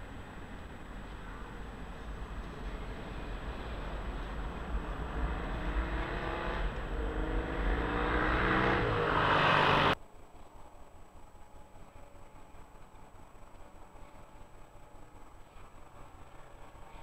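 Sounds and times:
tram wheels rumbling on rails: 0.0s - 8.0s
tram motor whine rising in pitch: 1.4s - 10.0s.

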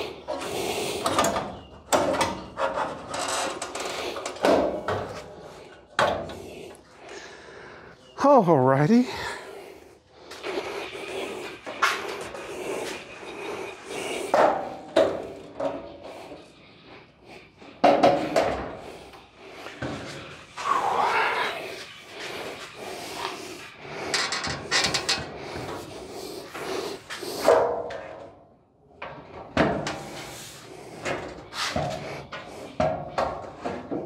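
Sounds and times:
metal panels knocking and scraping: 1.0s - 6.4s, 17.8s - 18.8s, 24.1s - 25.9s, 29.0s - 34.0s.

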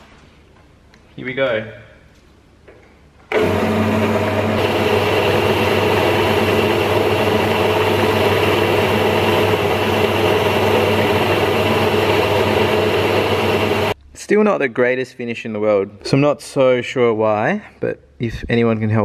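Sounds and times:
metal lathe running: 3.3s - 14.0s.

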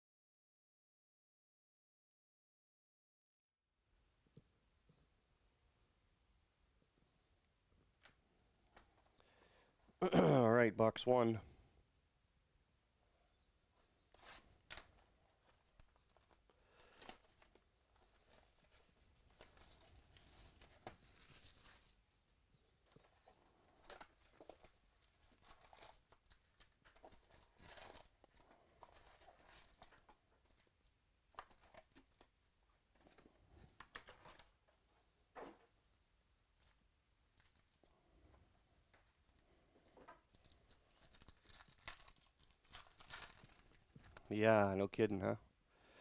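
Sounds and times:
foil packs crinkling: 14.2s - 22.0s, 22.9s - 32.3s, 39.0s - 44.3s
plastic wrap tearing: 14.2s - 22.0s, 23.8s - 30.7s, 40.0s - 44.3s.

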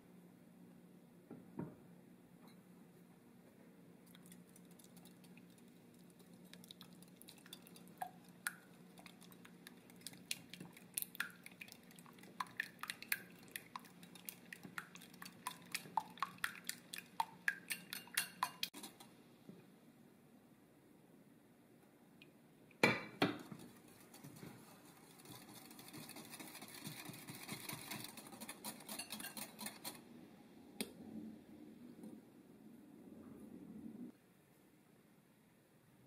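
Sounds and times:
whisk clinking against glass bowl: 15.4s - 19.0s, 26.0s - 30.0s.

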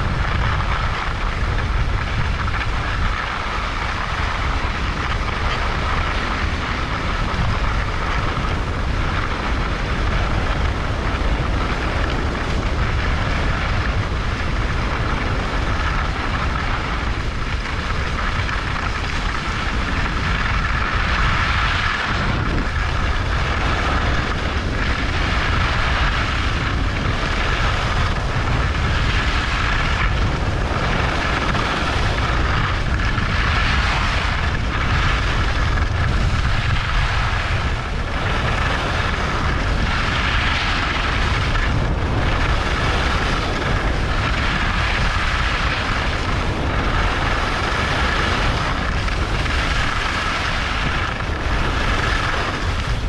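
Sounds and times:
wind buffeting microphone: 0.0s - 53.0s
skis hissing over snow: 11.1s - 53.0s.

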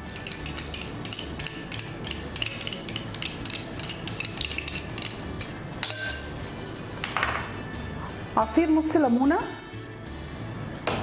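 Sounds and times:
spoon scraping a glass bowl: 0.1s - 5.2s.

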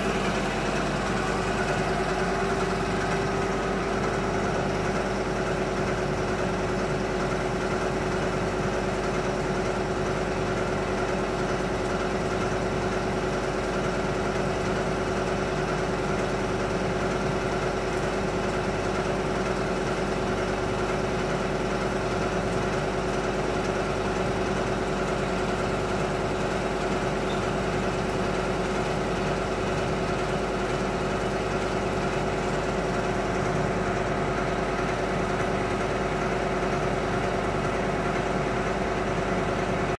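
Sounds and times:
foaming machine drone: 0.0s - 9.1s.

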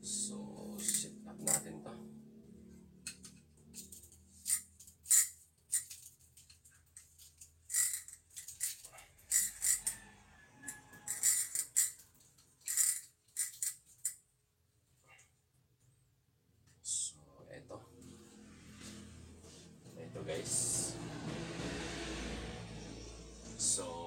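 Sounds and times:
fishing tackle clicking and rattling: 0.7s - 1.7s, 3.0s - 10.0s, 10.7s - 14.2s.

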